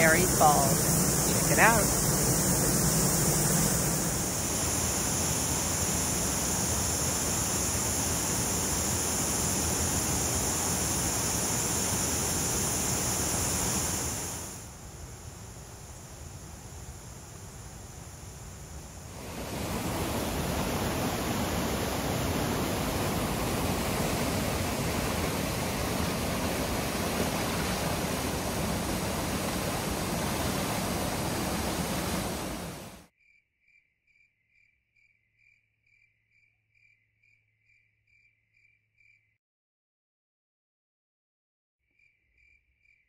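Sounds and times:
faint insect chirping: 0.0s - 39.4s, 41.8s - 43.0s
white-water river rushing: 19.2s - 33.0s.

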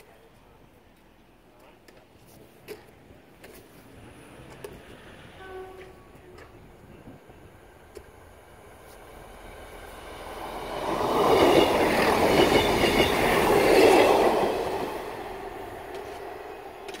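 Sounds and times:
train wheels on rails: 2.6s - 17.0s
diesel train engine: 3.9s - 17.0s.

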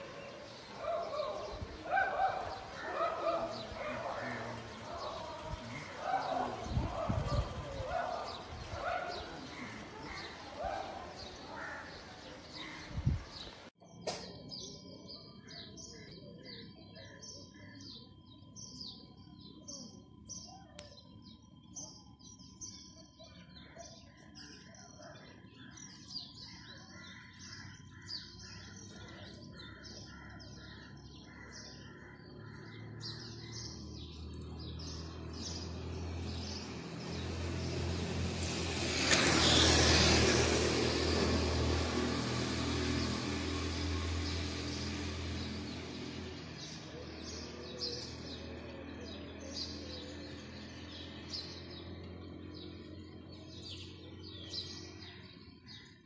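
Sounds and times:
motor scooter passing by: 0.0s - 13.7s, 25.8s - 56.0s
small birds chirping: 0.0s - 56.0s.

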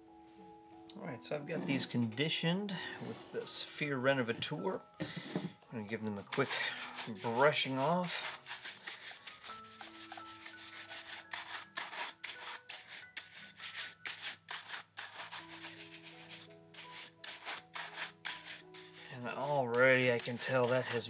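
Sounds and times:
brush rubbing leather shoe: 6.1s - 21.0s.

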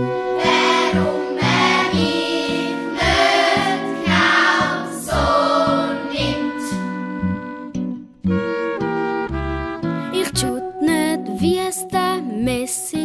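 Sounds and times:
children's choir singing pop: 0.2s - 6.8s.

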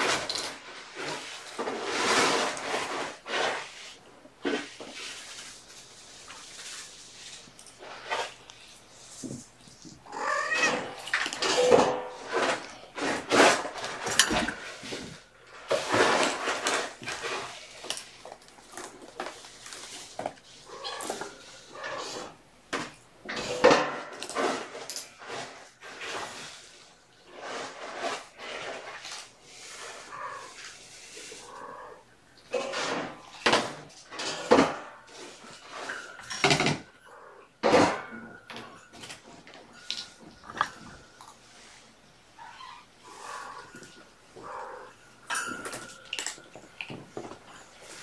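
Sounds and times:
knocks and rustles: 0.0s - 30.9s, 32.4s - 37.0s, 37.6s - 48.0s
cat meowing: 10.0s - 11.2s.

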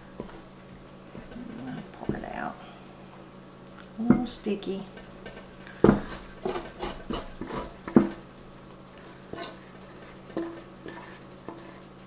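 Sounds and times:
spatula clanking on metal bowl: 5.3s - 8.2s, 8.9s - 11.8s
spatula scraping metal bowl: 5.9s - 8.2s, 8.9s - 11.9s.

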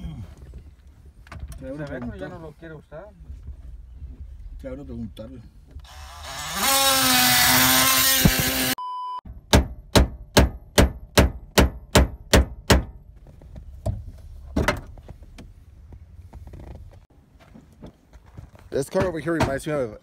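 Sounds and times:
cordless drill whining: 5.8s - 8.8s.

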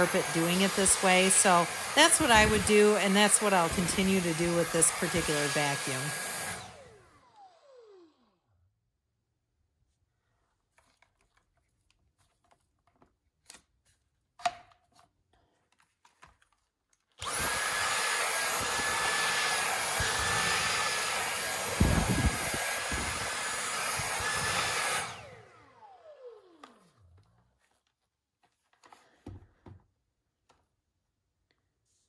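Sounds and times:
vacuum cleaner motor whine: 0.0s - 8.6s, 17.2s - 27.3s.

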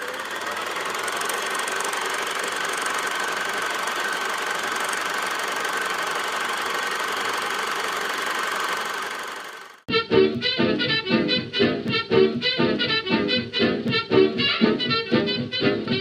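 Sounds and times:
film projector clattering: 0.0s - 9.9s.

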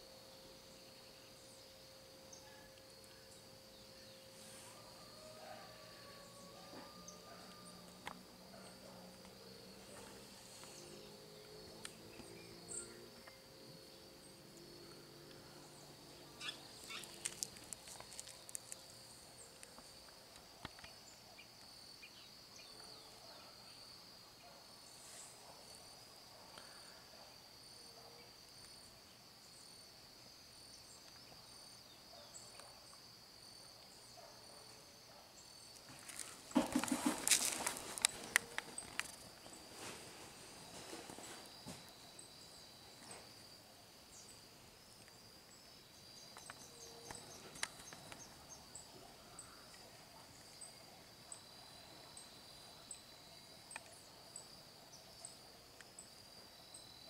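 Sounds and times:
insects chirring high pitch: 0.0s - 22.6s.

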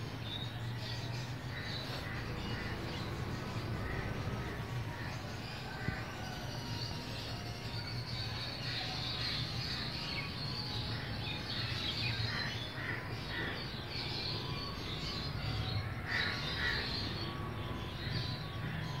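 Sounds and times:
small birds chirping: 0.0s - 19.0s
crows cawing: 12.1s - 13.7s, 16.0s - 17.0s.

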